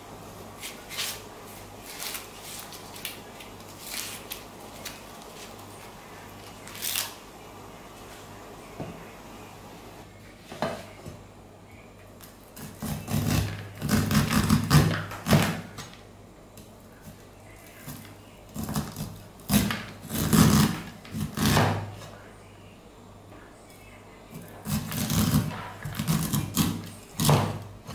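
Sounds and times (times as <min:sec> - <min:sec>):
cleaver cutting on wooden board: 0:12.6 - 0:15.4, 0:18.6 - 0:21.8, 0:24.6 - 0:27.5.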